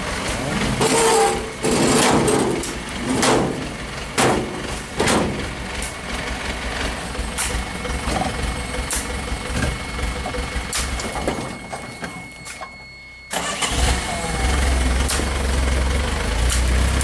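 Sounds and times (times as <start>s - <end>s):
truck engine running slowly: 0.0s - 17.0s
loud clunks: 0.8s - 5.6s.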